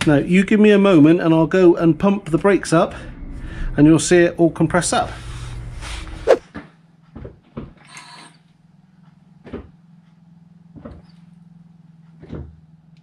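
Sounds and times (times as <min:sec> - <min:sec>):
car clunks and knocks: 0:09.4 - 0:09.8, 0:10.7 - 0:11.1, 0:12.2 - 0:12.6.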